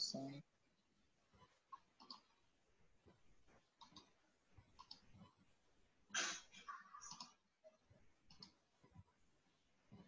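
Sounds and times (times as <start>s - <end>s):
computer mouse clicks: 1.7s - 2.4s, 3.8s - 5.4s, 7.0s - 7.4s, 8.2s - 9.0s.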